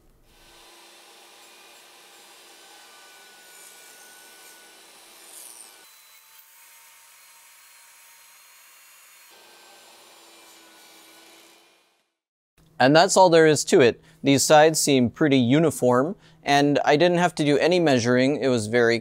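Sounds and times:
table saw cutting wood: 0.2 - 12.2.

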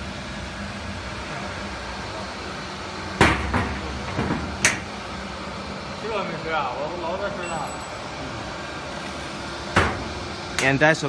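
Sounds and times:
steady low hum: 0.0 - 11.0
metal cabinet door banging shut: 3.2 - 4.8, 9.7 - 10.2.

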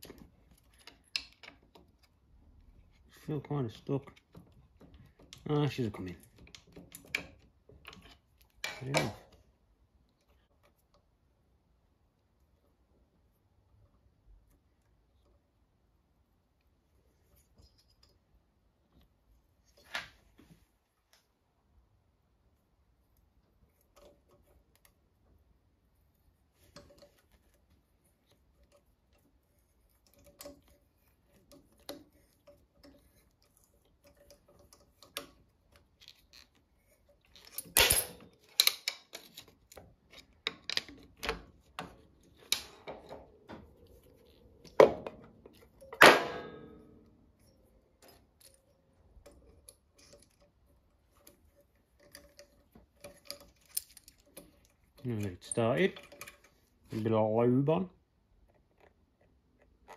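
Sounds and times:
metal tools clicking and clinking: 5.2 - 9.3, 29.9 - 44.8, 45.4 - 56.7.

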